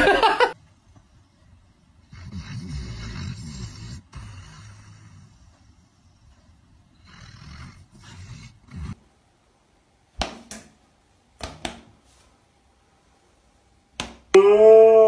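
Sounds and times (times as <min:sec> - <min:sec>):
dog snoring: 0:02.0 - 0:09.0.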